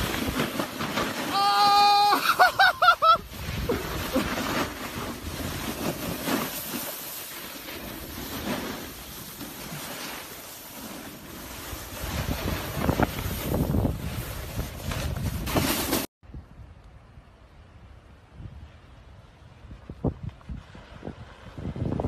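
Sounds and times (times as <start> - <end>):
snowboard scraping over snow: 0.0 - 16.1
person crying out: 1.3 - 3.2
wind buffeting the microphone: 3.0 - 6.3, 11.5 - 15.7, 16.3 - 22.0.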